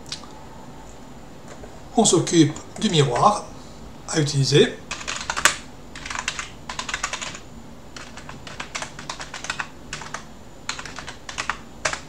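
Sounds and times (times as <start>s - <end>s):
typing on keyboard: 4.9s - 7.4s, 8.0s - 12.0s.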